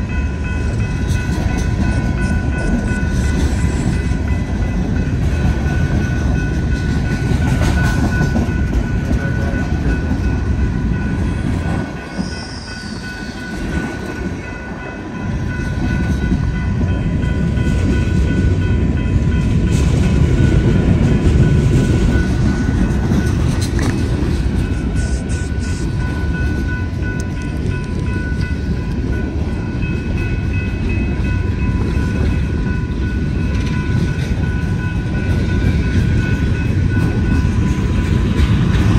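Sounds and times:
crossing warning bell ringing: 0.0 - 38.9
train wheels rumbling on rails: 0.0 - 38.9.

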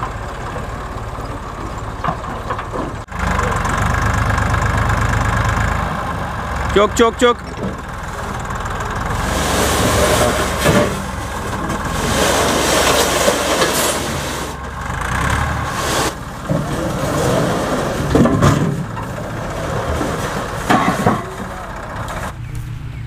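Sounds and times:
tractor engine running: 0.0 - 23.0
metal pipes clattering onto ground: 9.5 - 14.7, 16.4 - 22.3.

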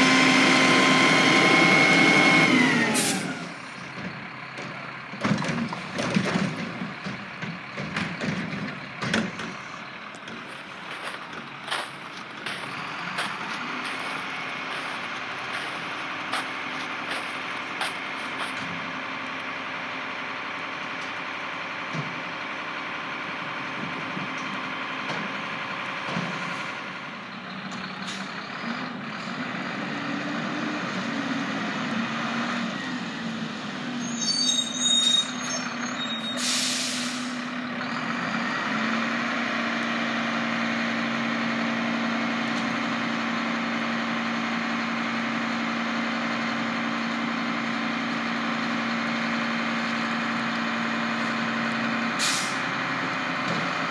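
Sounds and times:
truck engine running: 0.0 - 33.8, 35.6 - 53.9
engine idling hum: 3.6 - 21.5
brake squeal: 33.8 - 37.5
air brakes hissing: 34.1 - 37.5, 52.2 - 52.6.

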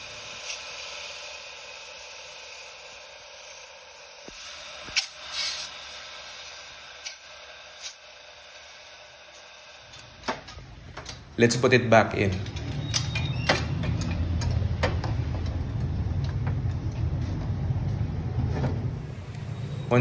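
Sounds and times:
compressed air hissing: 0.0 - 10.8.

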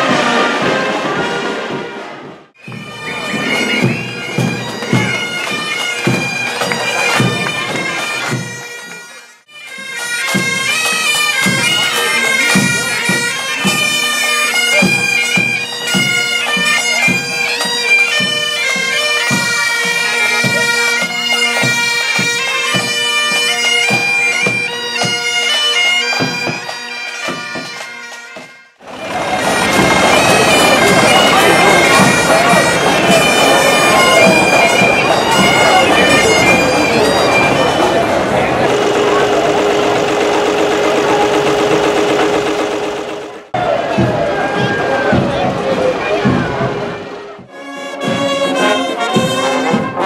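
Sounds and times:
marching drumbeat: 0.0 - 8.6, 28.4 - 50.0
bagpipes playing over drones: 2.6 - 50.0.

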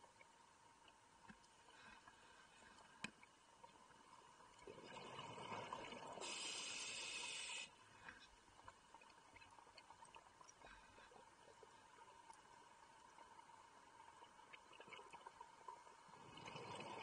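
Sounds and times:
faint clicks: 0.1 - 3.8
sharp hiss of air: 6.2 - 7.7.

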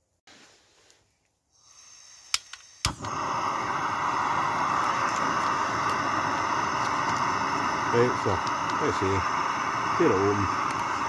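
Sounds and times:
gas burner hissing: 1.5 - 11.0
gas hissing from valve: 1.5 - 11.0
igniter clicks: 2.3 - 11.0.

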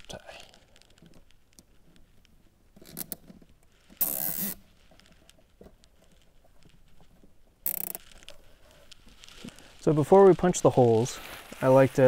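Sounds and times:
zip tie ratcheting: 2.8 - 4.7, 7.6 - 8.4.

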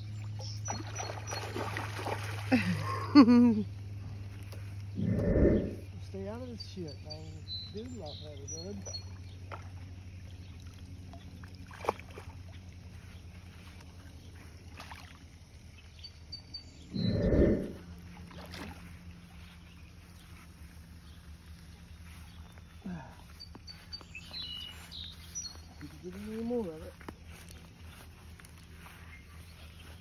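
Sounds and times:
low steady hum: 0.0 - 30.0
fish thrashing in water: 0.6 - 2.6, 9.1 - 15.7, 18.0 - 19.3.

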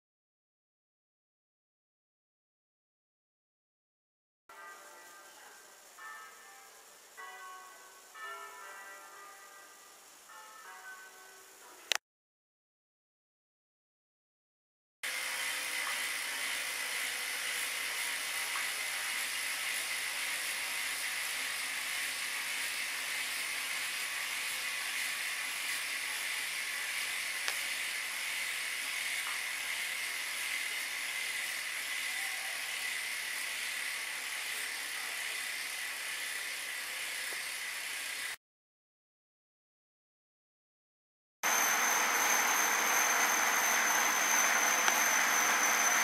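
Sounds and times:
bike wheel whirring on trainer: 15.0 - 38.4, 41.4 - 46.0.

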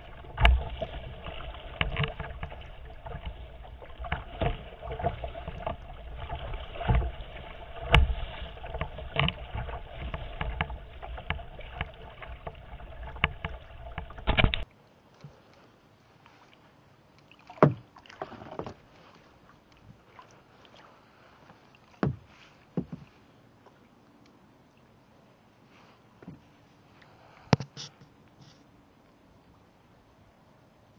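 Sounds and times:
waves slapping against hull: 0.0 - 23.9
water splashes: 0.0 - 25.1
paddle strokes: 0.0 - 28.8.

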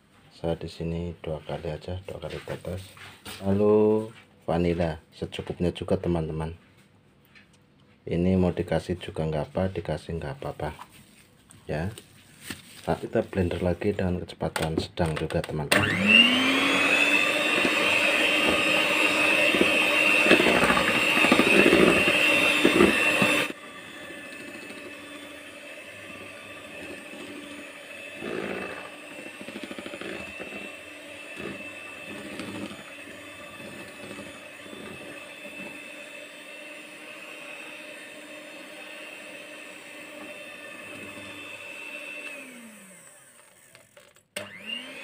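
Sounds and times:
electric hand mixer whining: 15.5 - 45.0.

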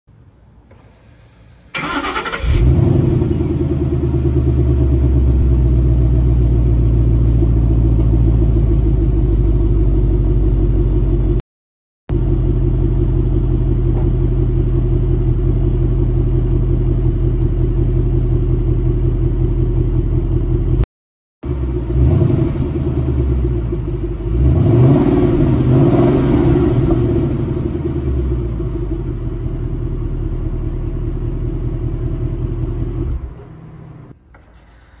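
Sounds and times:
car engine starting and idling: 0.6 - 11.4, 12.1 - 20.8, 21.4 - 35.0
engine revving: 1.8 - 8.7, 21.4 - 29.3.

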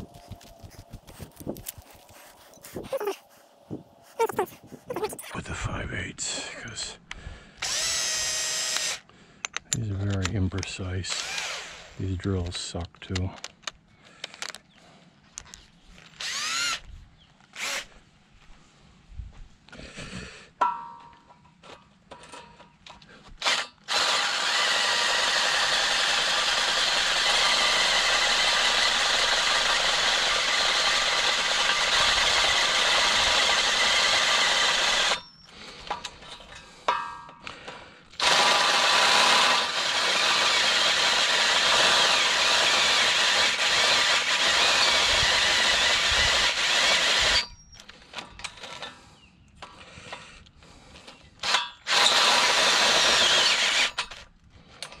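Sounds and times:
power drill drilling: 7.6 - 9.0, 11.1 - 12.0, 16.2 - 16.8, 17.5 - 17.9, 23.4 - 35.3, 38.2 - 47.7, 51.4 - 54.2.

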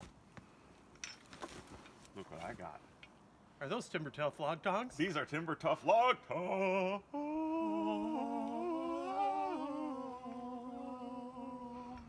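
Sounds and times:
men singing in harmony: 6.3 - 12.0.

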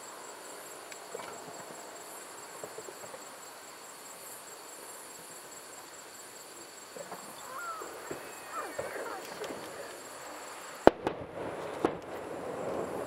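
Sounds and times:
night insects chirring: 0.0 - 13.0
distant fireworks popping: 2.5 - 3.4, 6.7 - 13.0.

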